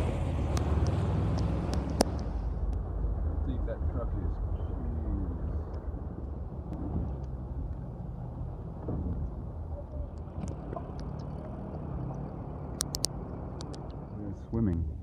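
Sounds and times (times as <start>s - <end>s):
car engine rumbling: 0.0s - 15.0s
sharp clicks: 10.1s - 14.0s.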